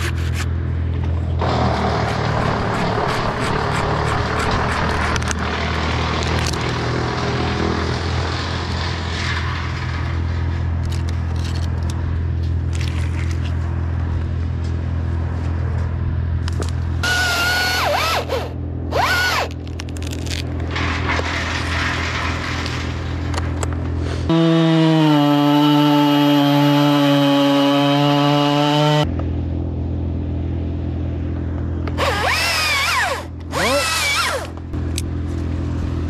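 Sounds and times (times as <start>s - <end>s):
rubbing and scraping: 0.0s - 0.6s, 1.4s - 5.4s, 19.0s - 24.3s
engine running at low speed: 0.0s - 36.0s.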